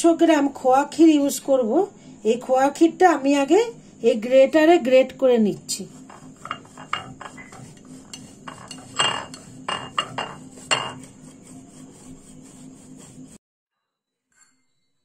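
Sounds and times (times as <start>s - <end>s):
grater scraping: 5.7s - 13.4s.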